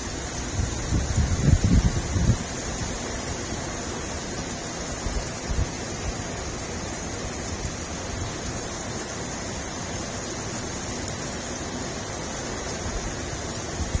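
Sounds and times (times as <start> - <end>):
wind rumbling on microphone: 0.0 - 8.5, 12.7 - 14.0
heavy rain pouring: 0.0 - 14.0.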